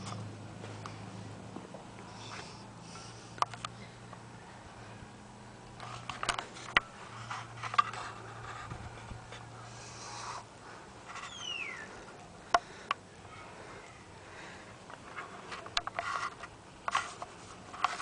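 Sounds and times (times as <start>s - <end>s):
faint low hum: 0.0s - 18.0s
short falling squeak: 11.2s - 11.9s.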